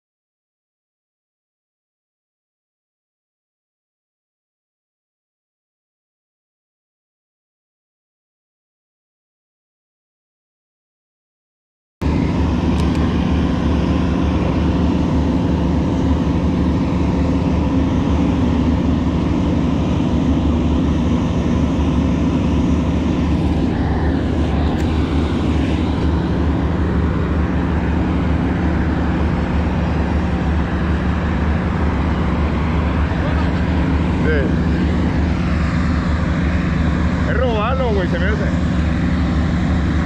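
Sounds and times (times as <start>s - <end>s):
engine running steadily: 12.0s - 40.0s.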